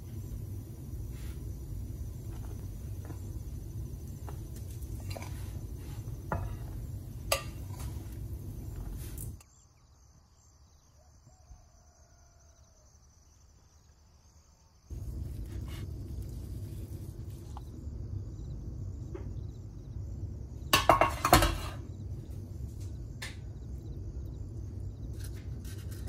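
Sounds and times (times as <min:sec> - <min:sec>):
low steady rumble: 0:00.0 - 0:09.4, 0:14.9 - 0:26.0.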